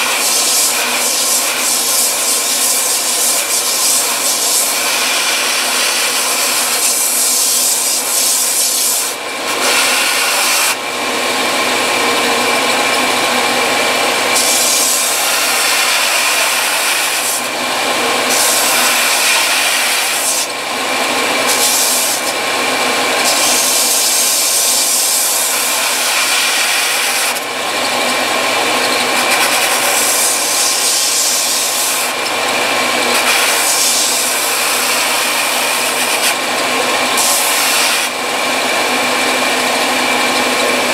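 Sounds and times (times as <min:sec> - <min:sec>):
grinding hiss: 0:00.0 - 0:10.8, 0:12.6 - 0:20.6, 0:21.4 - 0:27.4, 0:28.0 - 0:38.2
belt sander whining: 0:00.0 - 0:40.9.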